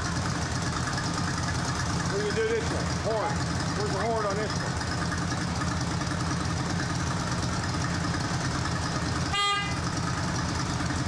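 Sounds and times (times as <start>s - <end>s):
motorcycle engine idling: 0.0s - 11.0s
motorcycle horn: 9.3s - 9.9s.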